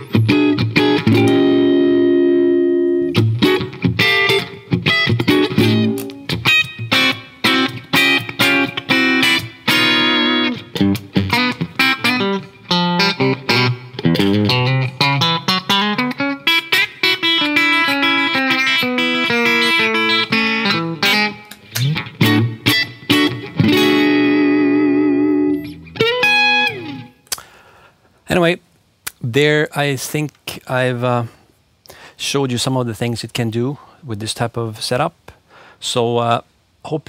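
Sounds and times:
electric guitar playing: 0.0s - 27.4s.

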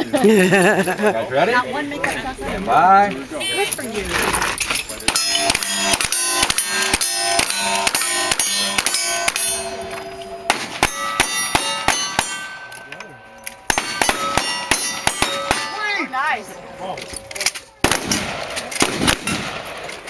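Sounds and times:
steel targets clanging: 3.7s - 20.0s
rapid gunfire: 5.1s - 9.4s, 17.8s - 19.6s.

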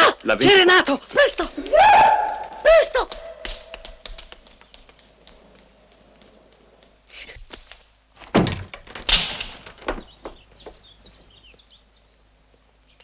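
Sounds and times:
door opening and shutting: 8.2s - 10.4s.

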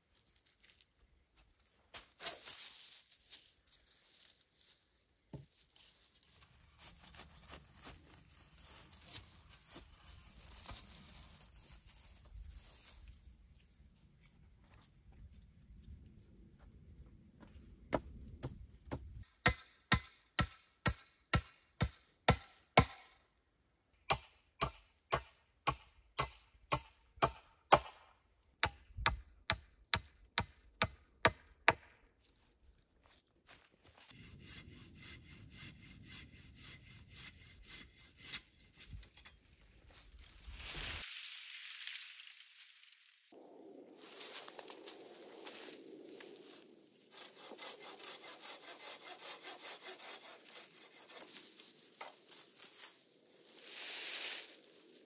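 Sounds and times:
tool striking wood: 17.9s - 23.1s, 24.1s - 28.0s, 28.6s - 32.0s.

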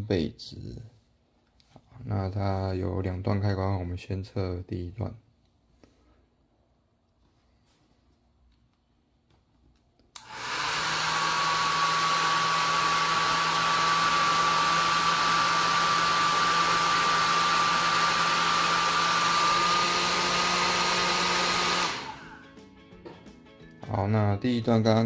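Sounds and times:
hair dryer switch click: 10.1s - 14.1s, 21.7s - 22.2s
hair dryer blowing: 10.2s - 22.4s.

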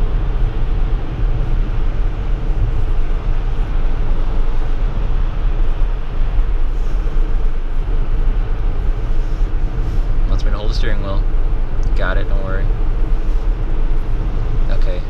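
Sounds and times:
car road noise low rumble: 0.0s - 15.0s
tyres hissing on wet road: 6.5s - 10.6s.

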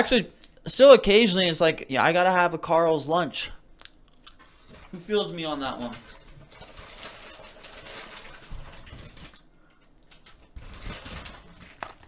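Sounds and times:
paper packaging rustling: 4.4s - 12.0s.

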